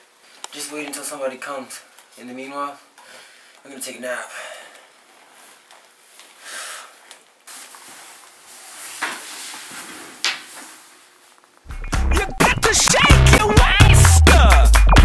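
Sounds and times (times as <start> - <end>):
soft rustling: 4.8 - 11.7.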